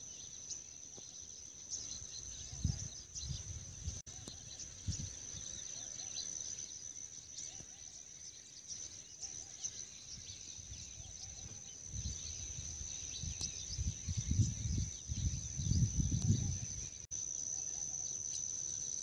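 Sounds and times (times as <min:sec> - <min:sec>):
insects droning: 0:00.0 - 0:19.0
wind buffeting microphone: 0:02.3 - 0:05.5, 0:10.2 - 0:17.0.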